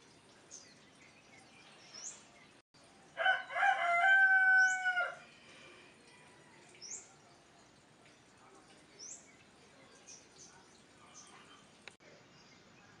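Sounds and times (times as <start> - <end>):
rooster crowing: 3.2 - 5.2.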